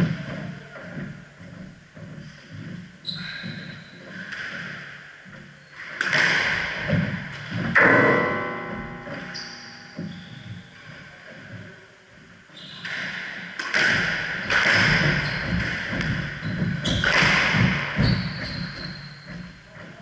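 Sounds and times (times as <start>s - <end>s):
shoes squeaking on floor: 0.0s - 7.7s, 9.1s - 20.0s
running footsteps: 0.0s - 20.0s
squash ball smacking: 5.9s - 8.2s, 12.9s - 19.0s.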